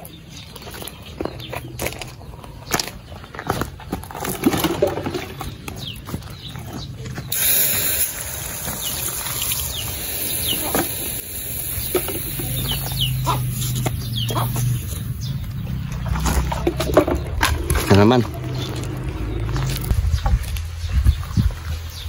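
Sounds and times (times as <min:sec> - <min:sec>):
water splashing from a jug: 0:15.9 - 0:19.0.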